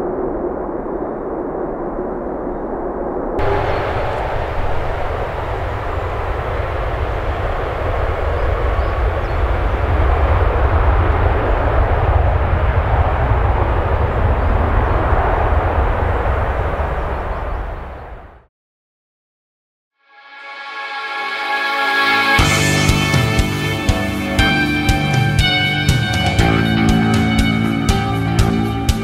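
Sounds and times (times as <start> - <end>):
jet engines roaring: 3.4 - 18.4, 21.2 - 29.0.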